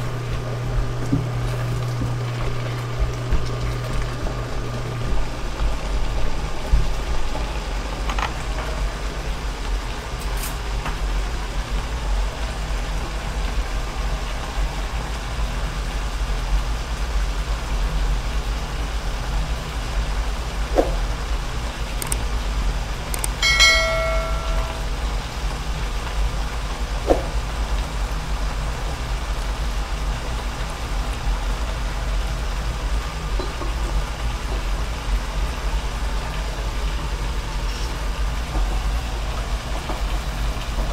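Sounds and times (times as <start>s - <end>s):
food simmering in a wok: 0.0s - 40.9s
faint clicks: 22.0s - 22.2s
short pitched tone: 23.4s - 25.0s.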